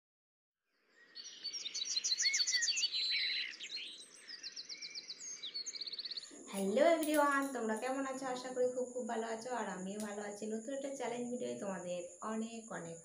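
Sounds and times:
birds chirping and singing: 1.0s - 7.6s.

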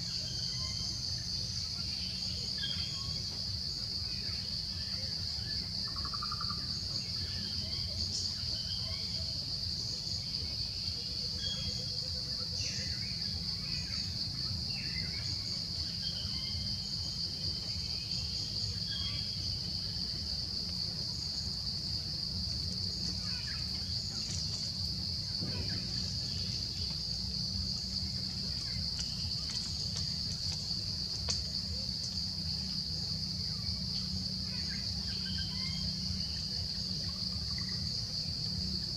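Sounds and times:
high-pitched insect drone: 11.4s - 38.9s.

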